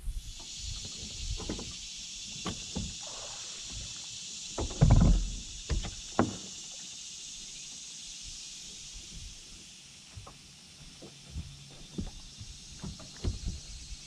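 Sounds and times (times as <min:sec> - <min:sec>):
knocks on boat deck: 0:12.8 - 0:13.7.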